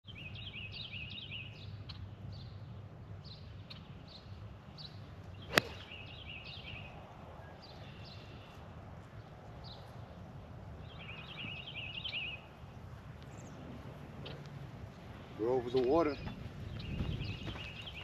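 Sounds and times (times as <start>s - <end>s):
birds chirping: 0.1s - 18.0s
golf club striking ball: 5.5s - 6.0s.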